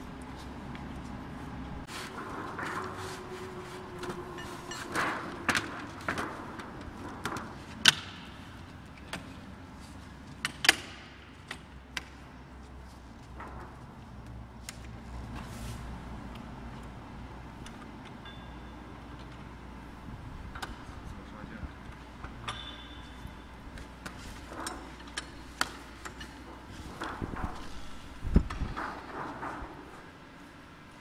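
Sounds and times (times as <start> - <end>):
clicks and knocks of metal parts: 22.2 - 29.9.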